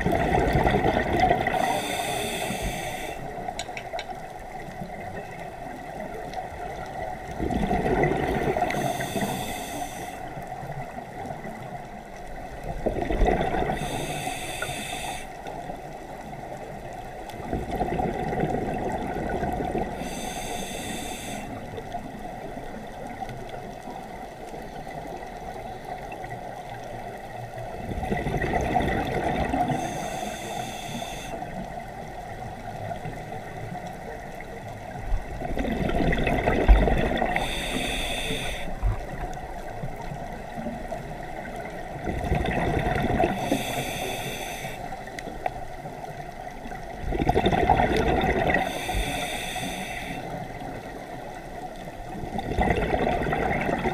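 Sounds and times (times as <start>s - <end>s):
bubbles gurgling underwater: 0.0s - 1.8s, 3.5s - 8.8s, 12.6s - 13.9s, 17.4s - 20.1s, 27.5s - 29.8s, 31.8s - 37.6s, 38.8s - 43.6s, 45.4s - 48.9s, 50.4s - 53.9s
air hissing through regulator: 1.5s - 3.3s, 8.7s - 10.3s, 13.8s - 15.4s, 20.0s - 21.6s, 29.7s - 31.5s, 37.4s - 38.9s, 43.4s - 44.9s, 48.6s - 50.4s.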